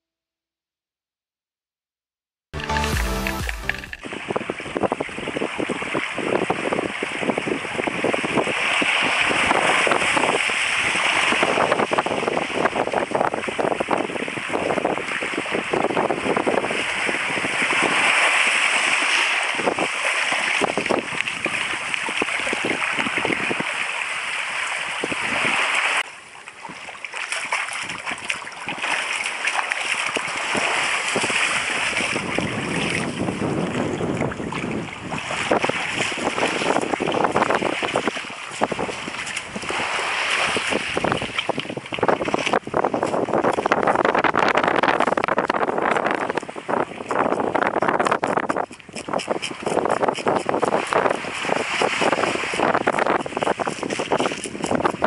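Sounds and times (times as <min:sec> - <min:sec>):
water splashing: 0:02.6 - 0:04.4, 0:17.0 - 0:55.0
wind on microphone: 0:03.9 - 0:26.0, 0:27.6 - 0:55.0
small waves washing over pebbles: 0:05.3 - 0:55.0.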